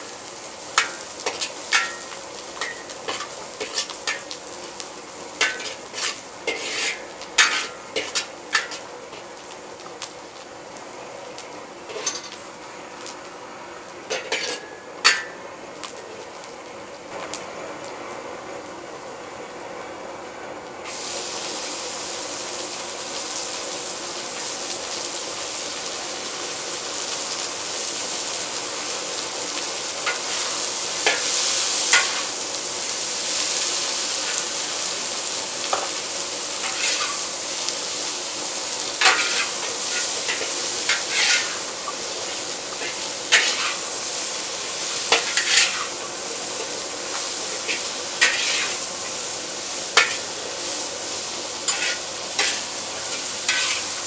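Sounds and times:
vegetables sizzling in a wok: 0.0 - 54.0
ladle and tongs scraping a wok: 0.8 - 4.3, 5.4 - 9.2, 11.9 - 12.4, 14.1 - 15.4, 30.0 - 32.4, 36.6 - 37.3, 39.0 - 44.0, 44.8 - 49.1, 49.9 - 50.9, 51.6 - 54.0.

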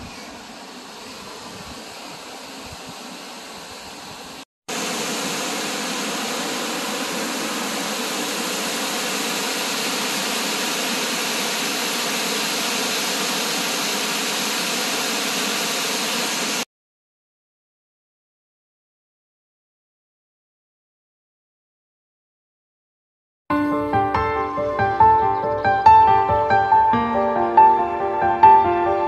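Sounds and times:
waterfall roaring: 0.4 - 16.6.

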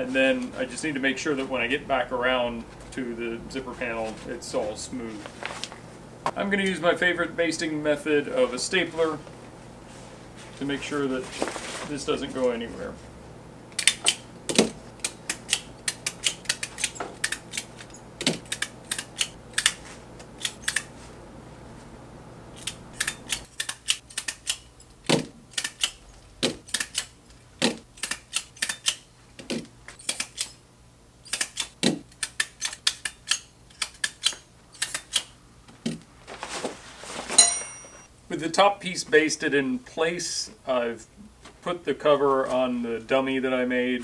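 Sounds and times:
stapler snapping through fabric: 22.6 - 26.0.

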